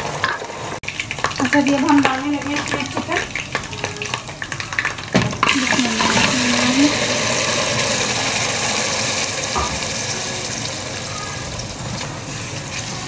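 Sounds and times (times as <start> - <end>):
food sizzling in hot oil: 0.0 - 13.0.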